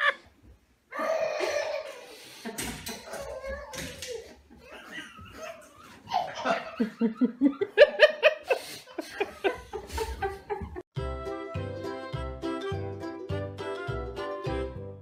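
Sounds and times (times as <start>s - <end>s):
person laughing hard: 0.0s - 0.3s, 4.3s - 10.8s
music: 11.0s - 15.0s.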